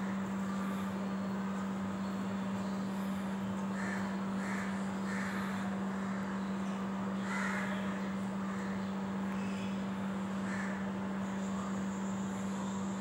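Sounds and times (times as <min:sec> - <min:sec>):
crows cawing: 0:03.7 - 0:06.5, 0:07.2 - 0:08.9, 0:10.4 - 0:11.0.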